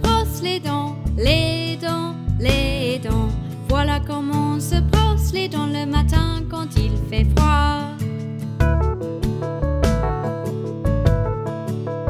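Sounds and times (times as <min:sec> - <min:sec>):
cheerful children's song: 0:00.0 - 0:08.0.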